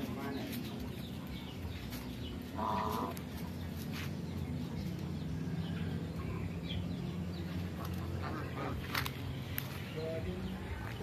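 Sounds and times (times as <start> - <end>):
poultry calling: 1.8 - 4.1, 5.5 - 10.8.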